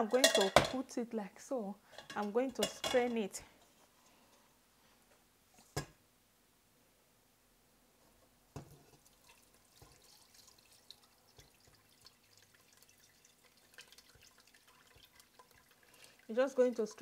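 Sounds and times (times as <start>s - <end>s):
thick liquid pouring and dripping: 8.6s - 17.0s.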